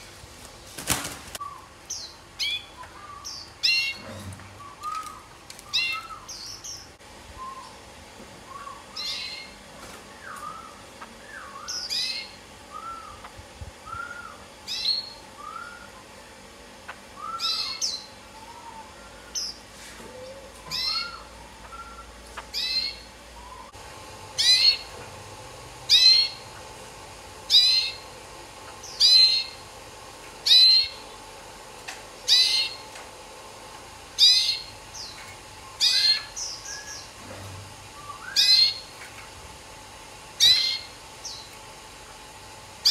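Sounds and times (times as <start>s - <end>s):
songbirds whistling: 1.3s - 16.2s, 17.1s - 23.8s, 24.4s - 25.0s, 27.5s - 28.0s, 28.8s - 29.6s, 30.4s - 31.1s, 32.2s - 32.9s, 34.2s - 37.2s, 38.0s - 39.0s, 40.4s - 41.5s.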